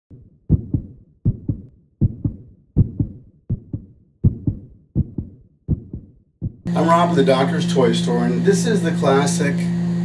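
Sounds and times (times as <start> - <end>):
heartbeat thumps: 0.1 - 6.7.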